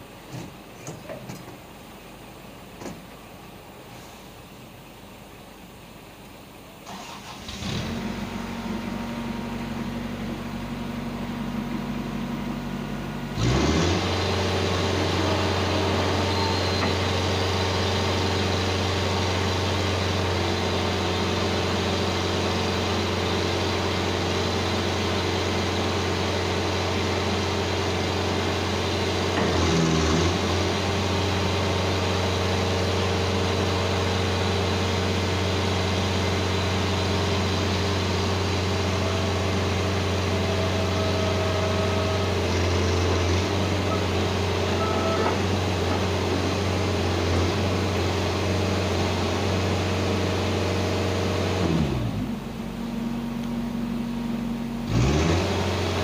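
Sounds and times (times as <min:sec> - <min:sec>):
engine and hydraulics running: 0:00.0 - 0:56.0.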